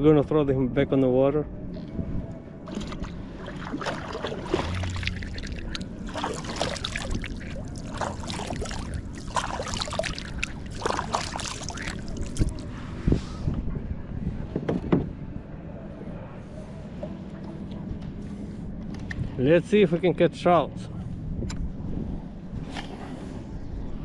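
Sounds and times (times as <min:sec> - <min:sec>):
water splashing against kayak: 0:02.7 - 0:12.8.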